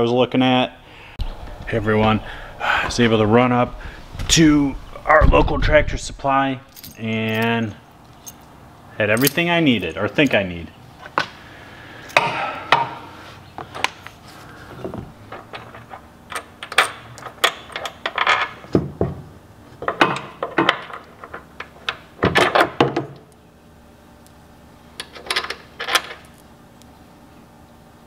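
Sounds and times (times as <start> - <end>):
metal bolts clinking and rattling: 6.7 - 10.4, 15.3 - 18.8, 19.8 - 23.2, 25.0 - 26.4.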